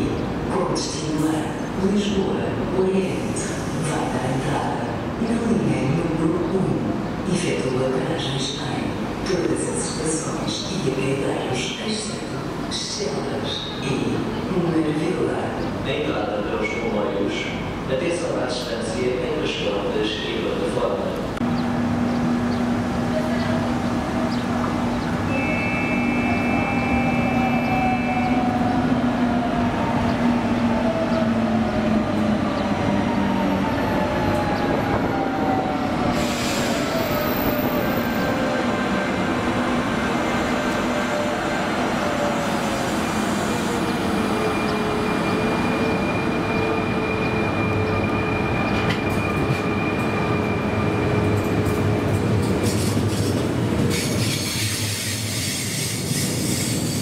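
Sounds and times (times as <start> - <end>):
electric train whine: 21.4 - 51.9.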